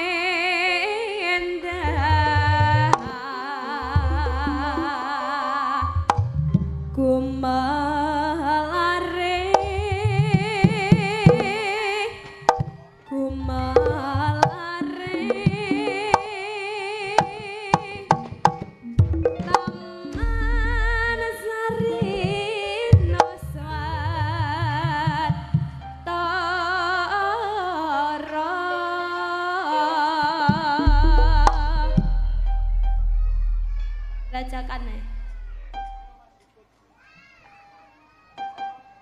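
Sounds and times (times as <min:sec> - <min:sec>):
woman singing with vibrato: 0:00.0 - 0:33.1, 0:34.2 - 0:35.3
hand drum strokes: 0:01.8 - 0:03.2, 0:05.9 - 0:07.1, 0:09.4 - 0:26.0, 0:30.2 - 0:36.2
live band accompaniment: 0:17.2 - 0:23.4.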